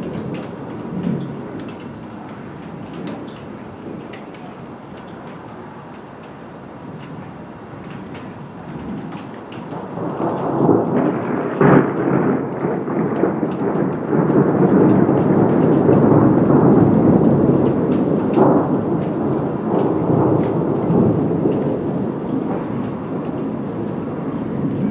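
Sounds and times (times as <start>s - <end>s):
rolling thunder: 8.7s - 24.9s.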